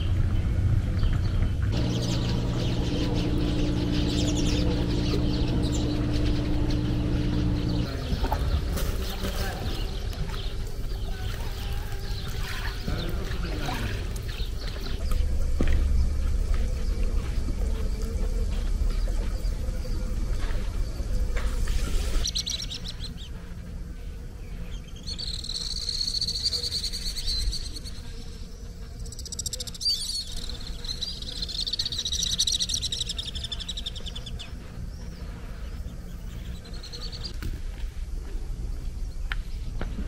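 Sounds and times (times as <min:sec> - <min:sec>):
low steady rumble: 0:00.0 - 0:25.4
birds chirping in trills: 0:00.0 - 0:37.4.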